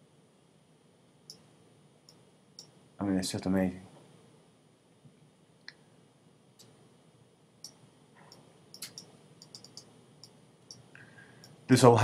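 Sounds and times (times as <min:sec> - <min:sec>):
quiet room hiss: 0:00.0 - 0:12.0
computer mouse clicks: 0:07.6 - 0:10.8.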